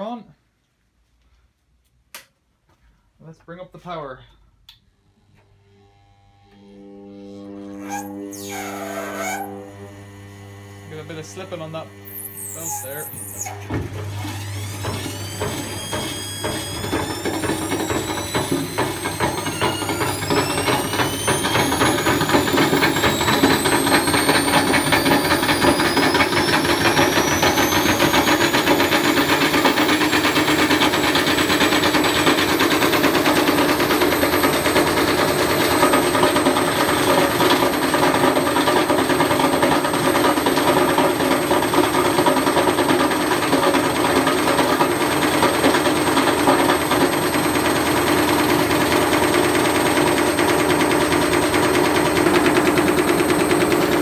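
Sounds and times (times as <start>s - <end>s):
motor high whine: 5.0s - 54.0s.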